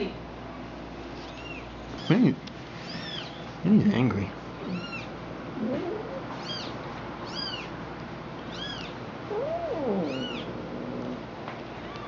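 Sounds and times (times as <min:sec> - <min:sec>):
kitten mewing: 0:05.6 - 0:06.7, 0:08.5 - 0:12.0
cat meowing: 0:08.5 - 0:11.2.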